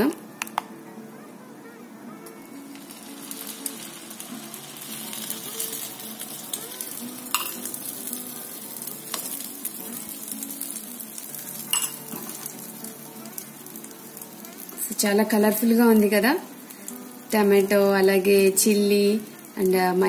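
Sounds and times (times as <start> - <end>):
egg batter sizzling in oil: 2.5 - 20.0
spoon clinking against bowl: 7.3 - 7.7, 11.7 - 12.2.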